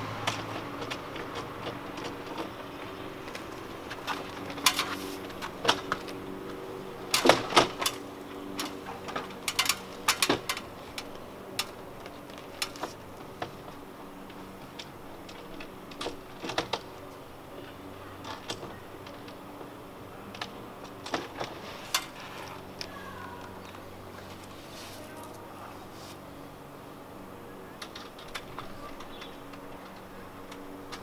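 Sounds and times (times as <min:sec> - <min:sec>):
metallic clicks of bolts and brackets: 0:08.6 - 0:11.7.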